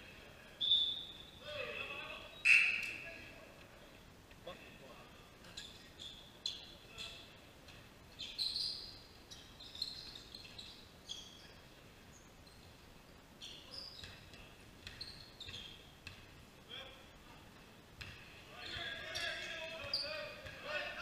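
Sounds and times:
shoes squeaking on wooden floor: 14.9s - 15.9s.

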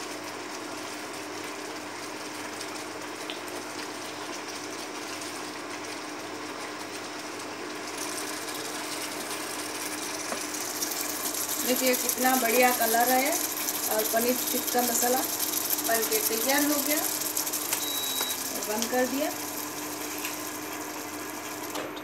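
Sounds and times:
curry bubbling in a pan: 0.0s - 21.6s
spatula stirring: 6.7s - 21.6s.

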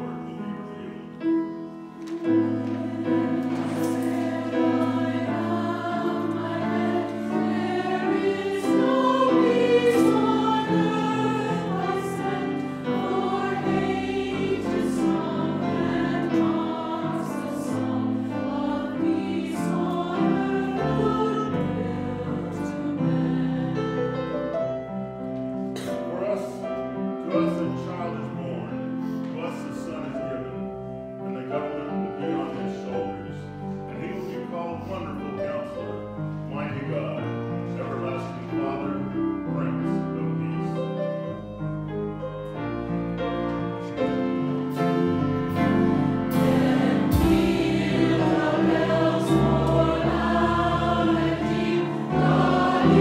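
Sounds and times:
choir singing in parts: 0.0s - 25.0s, 43.8s - 53.0s.

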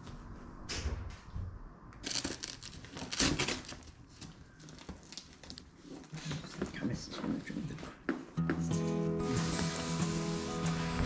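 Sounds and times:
packaging rustling and crinkling: 2.0s - 6.8s.

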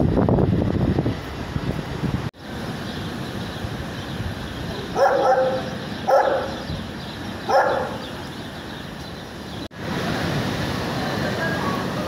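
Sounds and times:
dog barking: 4.8s - 6.6s, 7.5s - 8.1s.

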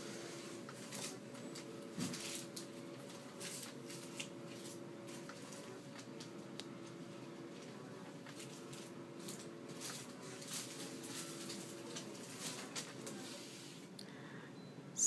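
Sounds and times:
faint steady hum: 0.0s - 15.0s
rustling handling noises: 0.2s - 13.9s
faint steady tone: 14.1s - 15.0s.

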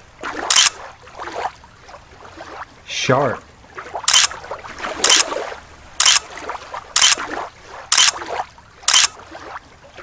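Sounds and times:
water splashing: 0.0s - 10.0s
water sloshing: 3.6s - 10.0s.

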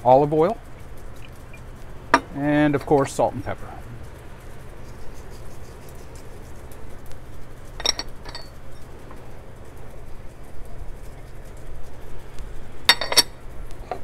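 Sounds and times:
low steady hum: 0.0s - 14.0s
bowl and utensils clattering: 7.8s - 8.8s, 12.9s - 14.0s
sharp ringing clinks: 7.8s - 8.9s.

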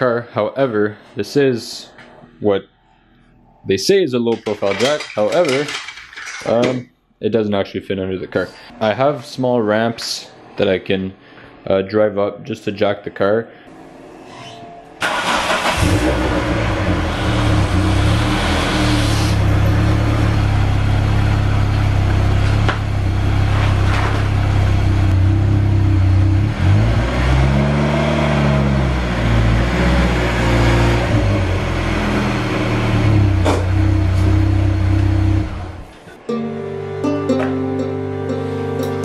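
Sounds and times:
car engine idling: 15.0s - 26.8s, 32.4s - 36.0s
engine revving: 15.0s - 35.9s.

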